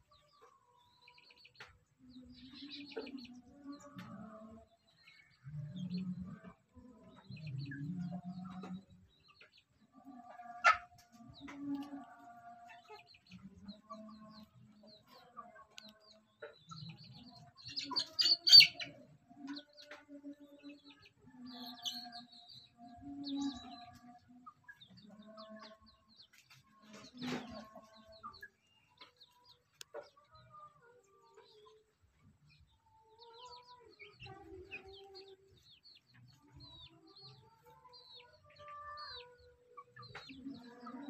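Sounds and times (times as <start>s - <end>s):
chickens clucking and chirping: 0.0s - 41.0s.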